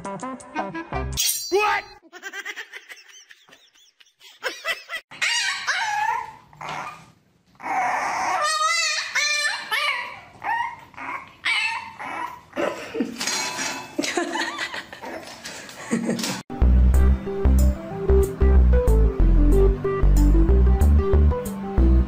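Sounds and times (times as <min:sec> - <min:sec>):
puppy whining and yelping: 0:05.1 - 0:12.6.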